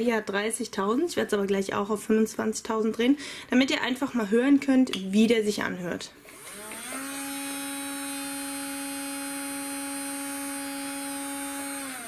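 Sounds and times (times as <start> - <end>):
nail drill motor whining: 6.3 - 12.0.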